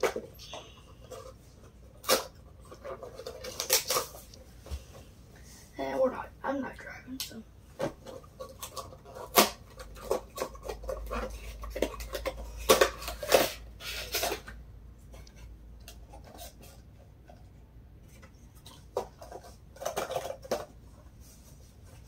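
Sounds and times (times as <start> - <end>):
packaging crinkling and rustling: 1.0 - 4.4.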